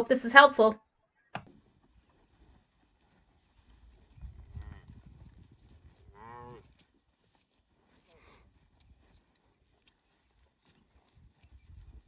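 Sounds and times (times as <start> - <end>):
cattle mooing: 4.5 - 5.0, 6.0 - 6.7.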